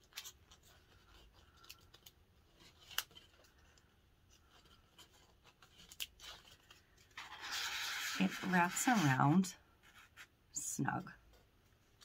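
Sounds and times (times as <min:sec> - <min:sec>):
fingers handling measuring tape: 0:00.0 - 0:09.3.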